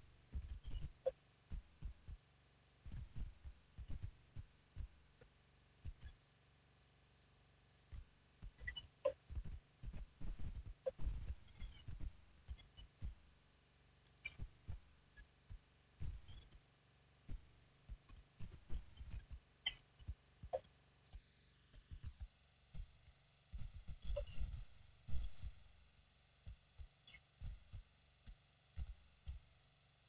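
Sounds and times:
faint short high chirps: 8.6 - 9.2.

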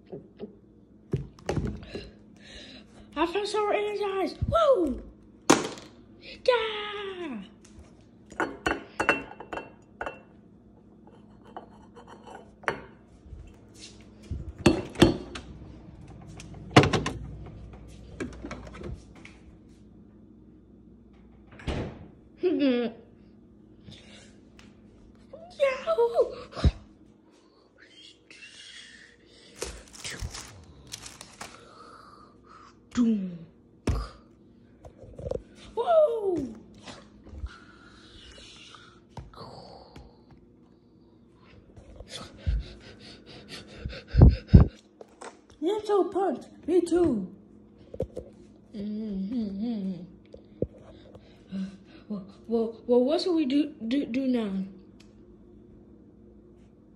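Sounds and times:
refrigerator door opening: 14.8 - 19.2, 21.4 - 22.2
packages rustling: 29.5 - 31.8.

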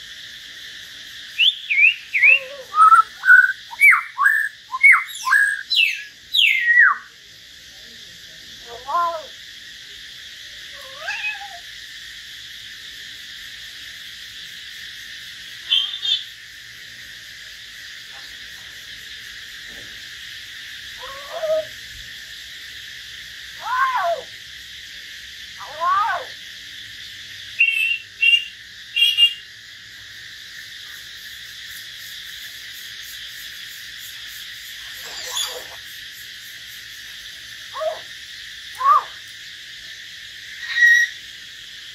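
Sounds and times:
steady high hiss: 0.0 - 41.9
bird whistled calls: 1.4 - 7.1, 27.6 - 29.4, 35.0 - 35.8, 40.6 - 41.2.

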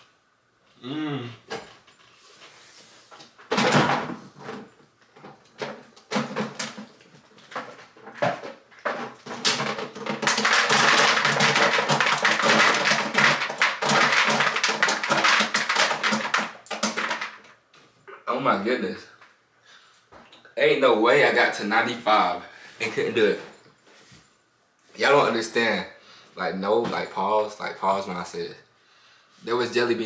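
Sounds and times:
man gagging: 0.8 - 1.4.

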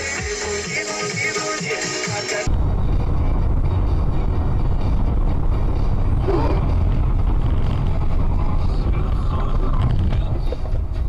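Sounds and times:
car road and engine rumble: 2.4 - 11.0.

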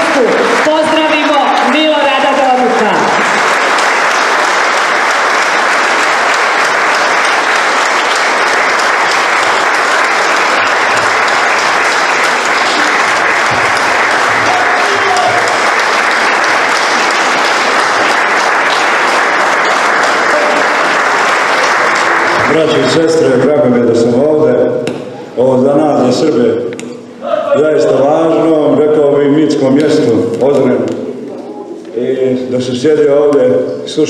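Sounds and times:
audience applauding: 0.0 - 24.1.

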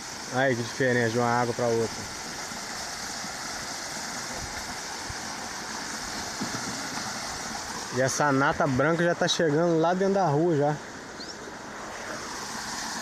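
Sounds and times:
river water running over rocks: 0.0 - 13.0.

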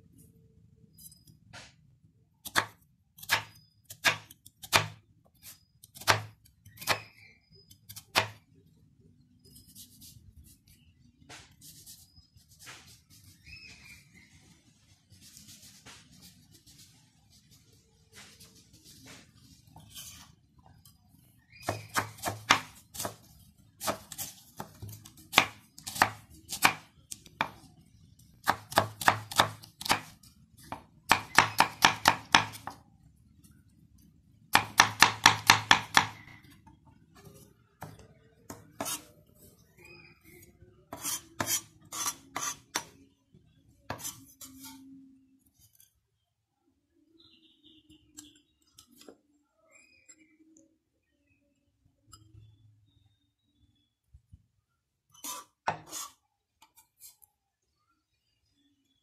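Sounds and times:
knife chopping on wooden board: 2.5 - 5.0, 8.2 - 8.4, 21.6 - 23.2, 23.8 - 26.8, 28.4 - 30.1, 30.7 - 32.8, 34.5 - 36.2.

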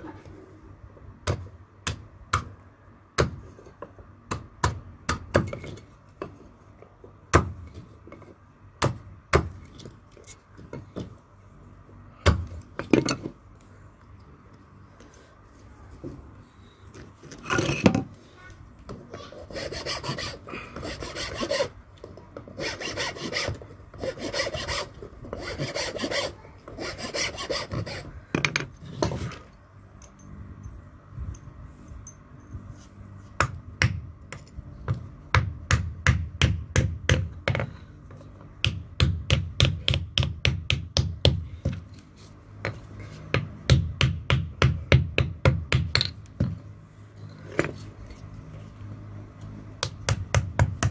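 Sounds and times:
rasping strokes on wood: 19.3 - 21.8, 22.5 - 28.1.

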